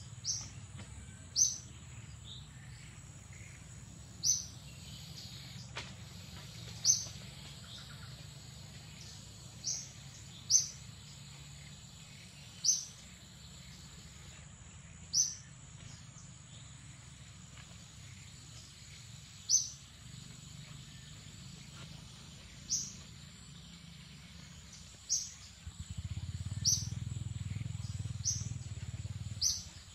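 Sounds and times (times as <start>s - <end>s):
bird chirping: 0.0s - 29.9s
high insect whine: 1.4s - 15.6s
low rumble: 20.4s - 29.9s.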